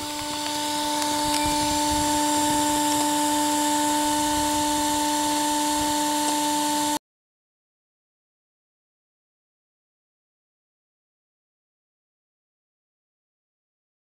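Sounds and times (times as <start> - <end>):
steady motor whine: 0.0 - 7.0.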